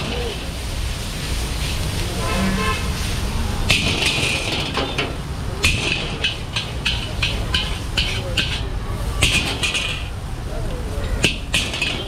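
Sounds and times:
low steady rumble: 0:00.0 - 0:12.0
metal spatula scraping a wok: 0:02.2 - 0:03.1.

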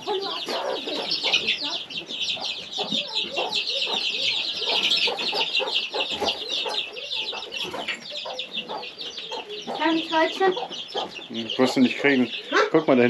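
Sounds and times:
chickens clucking: 0:00.0 - 0:13.0
chicks peeping: 0:00.0 - 0:13.0.

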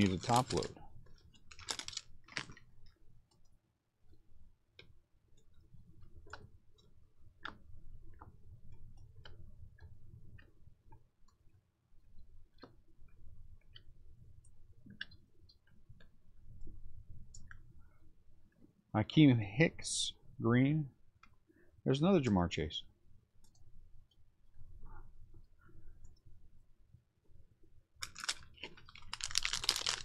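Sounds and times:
cards flipping and snapping: 0:00.0 - 0:00.7, 0:01.5 - 0:02.6, 0:28.0 - 0:30.0.

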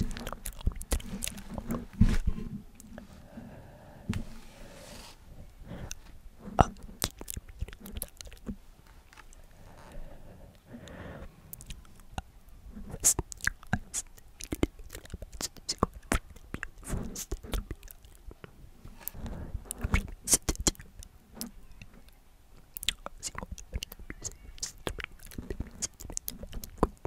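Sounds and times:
mouth clicks and lip smacks: 0:00.0 - 0:02.0, 0:05.8 - 0:08.6, 0:11.5 - 0:27.0
person whispering: 0:05.6 - 0:08.6, 0:09.3 - 0:18.4, 0:19.0 - 0:22.0, 0:22.8 - 0:27.0.

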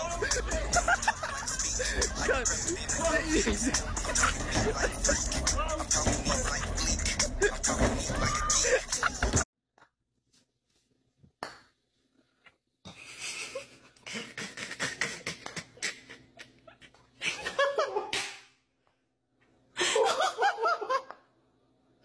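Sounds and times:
person laughing: 0:00.0 - 0:09.4, 0:12.9 - 0:18.2.

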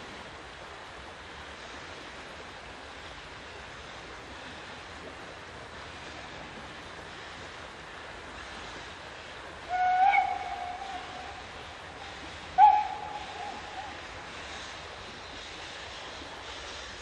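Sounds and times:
steam locomotive whistle: 0:09.7 - 0:11.4, 0:12.6 - 0:14.0.

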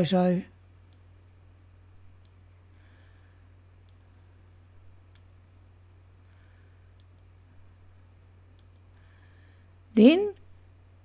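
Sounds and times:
steady low hum: 0:00.0 - 0:11.0
faint mouse clicks: 0:00.9 - 0:02.4, 0:03.8 - 0:04.1, 0:05.1 - 0:05.4, 0:06.9 - 0:07.3, 0:08.5 - 0:09.0.

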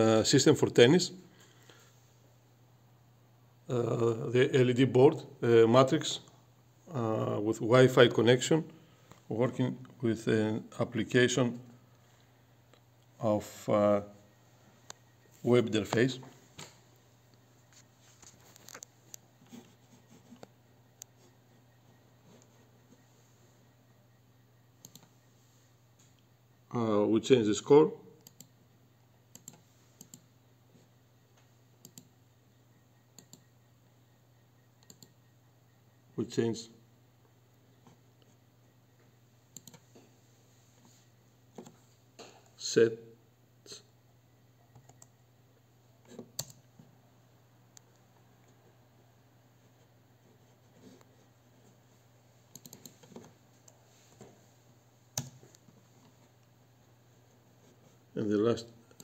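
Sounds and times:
faint low hum: 0:00.0 - 0:59.0
computer mouse clicks: 0:24.8 - 0:25.1, 0:28.2 - 0:28.5, 0:29.3 - 0:30.3, 0:31.8 - 0:32.1, 0:33.1 - 0:33.5, 0:34.8 - 0:35.2, 0:39.5 - 0:39.9, 0:44.6 - 0:45.1, 0:46.0 - 0:46.6, 0:52.5 - 0:53.8.

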